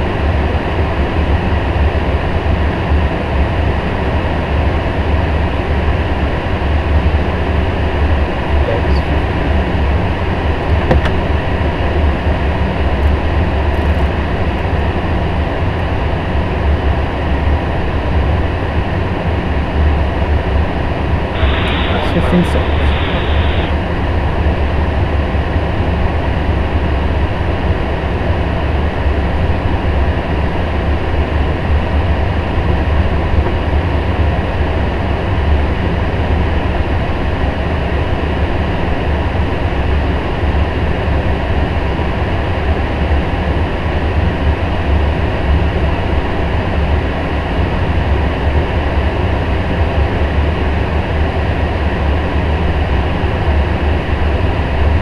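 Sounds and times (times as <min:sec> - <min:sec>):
cockpit air rush and rumble: 0:19.9 - 0:24.6.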